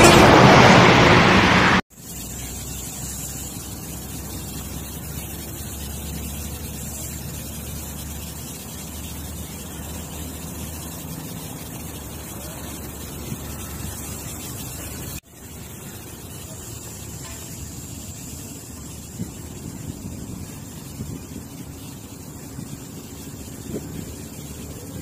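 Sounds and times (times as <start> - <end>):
loud sound: 0.0 - 1.8
steady hiss: 0.0 - 25.0.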